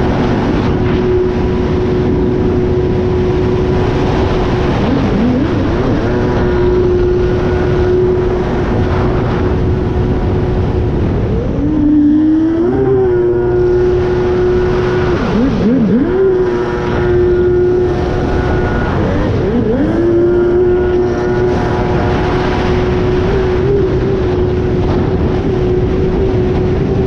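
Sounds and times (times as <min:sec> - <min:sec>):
jet ski engine at high revs: 0:00.0 - 0:27.0
rushing water: 0:00.0 - 0:27.0
wind: 0:00.0 - 0:27.0.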